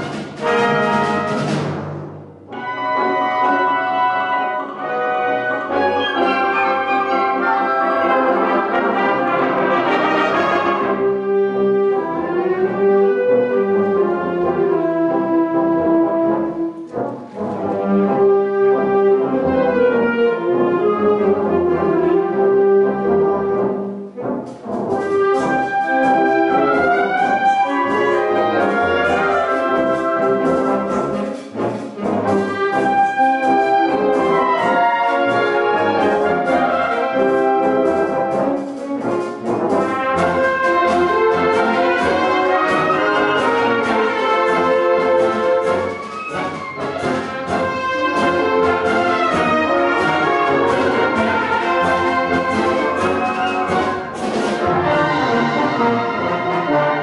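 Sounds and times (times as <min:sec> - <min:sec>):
concert wind band playing: 0:00.0 - 0:57.0.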